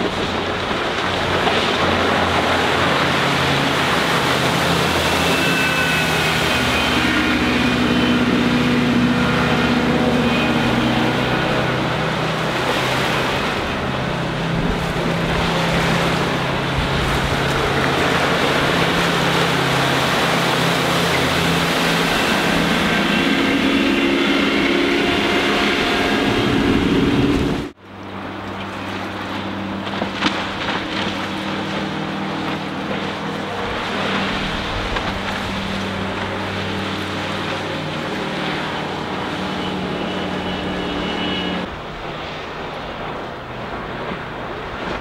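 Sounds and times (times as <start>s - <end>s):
boat engine running: 0.0s - 45.0s
water rushing off hull: 0.0s - 45.0s.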